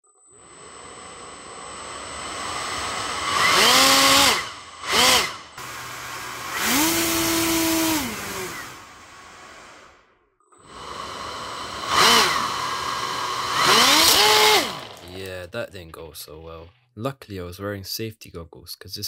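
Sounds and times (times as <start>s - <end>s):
ducted fan motor whine: 0.4s - 8.9s, 10.7s - 15.2s.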